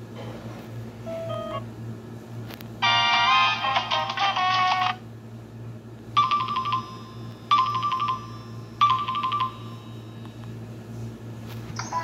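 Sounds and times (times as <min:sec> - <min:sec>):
polyphonic ringtone melody: 0:01.1 - 0:01.6, 0:06.2 - 0:10.2.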